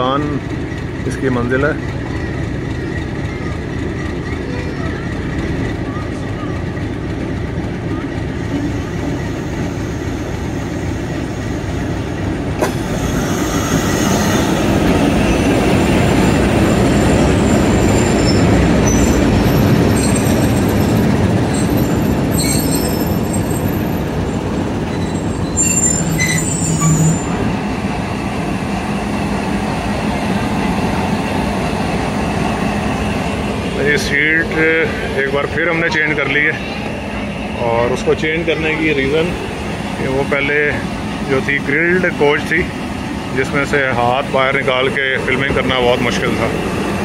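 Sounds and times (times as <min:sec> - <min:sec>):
train wheels rumbling: 0:00.0 - 0:47.0
high-pitched wheel squeal: 0:16.6 - 0:24.1, 0:24.9 - 0:27.5.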